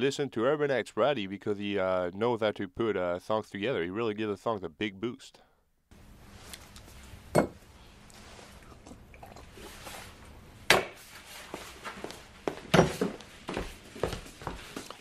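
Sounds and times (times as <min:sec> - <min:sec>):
glass and bottle clinking on table: 0:07.3 - 0:07.6.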